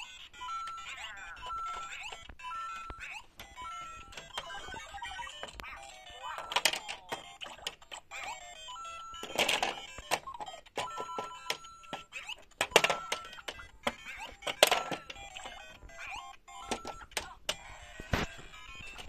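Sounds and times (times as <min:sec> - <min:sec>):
sharp plastic clicks: 0:09.2 - 0:15.6.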